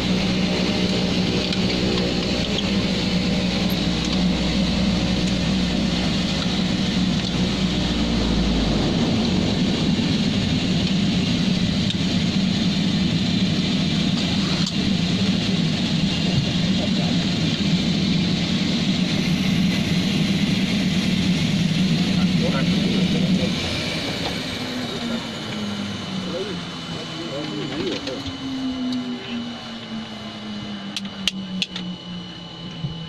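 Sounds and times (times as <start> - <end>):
deep low rumble: 0.0 - 24.2
turboprop engines droning: 0.0 - 33.0.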